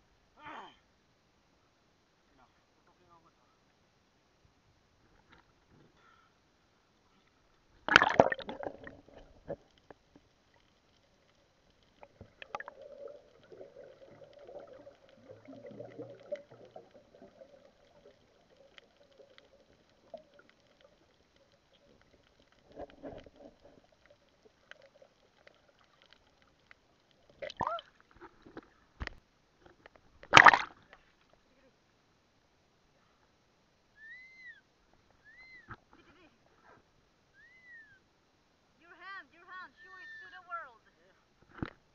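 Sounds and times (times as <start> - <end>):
faint steady hum: 0.0 - 41.9
underwater sloshing and gurgling: 7.4 - 31.4
loud splash: 7.9 - 8.8, 30.3 - 30.7.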